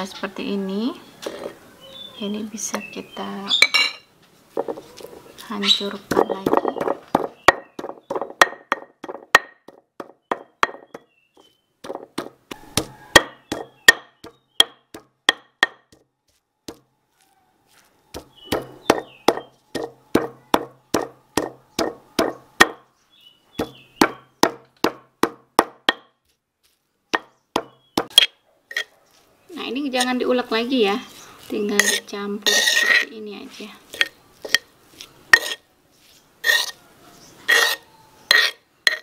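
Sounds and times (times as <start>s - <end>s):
stone pestle pounding in mortar: 6.0s - 11.1s, 11.8s - 16.1s, 18.2s - 22.8s, 23.6s - 26.2s, 27.2s - 28.3s.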